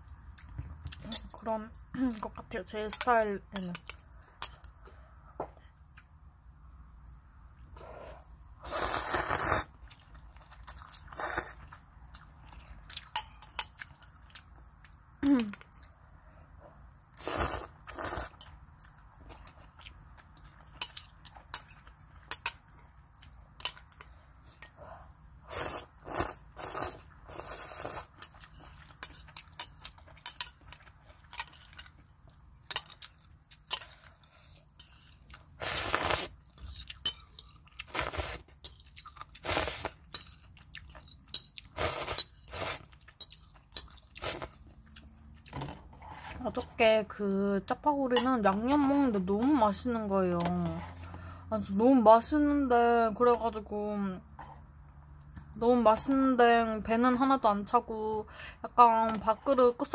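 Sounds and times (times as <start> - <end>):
slurping and chewing: 7.8 - 15.9, 16.8 - 46.4.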